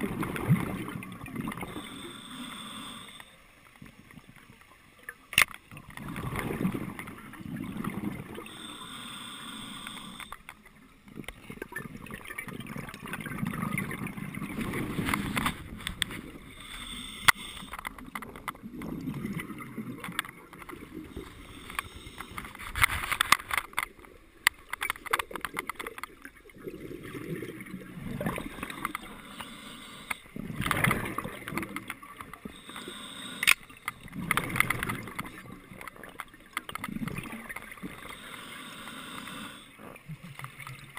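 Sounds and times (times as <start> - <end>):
exhaled bubbles gurgling: 0.0 - 3.2, 5.7 - 23.2, 23.8 - 40.9
regulator inhale hiss: 1.6 - 3.4, 8.4 - 10.5, 16.5 - 17.9, 21.1 - 22.6, 28.8 - 30.3, 32.4 - 33.9, 38.0 - 39.8.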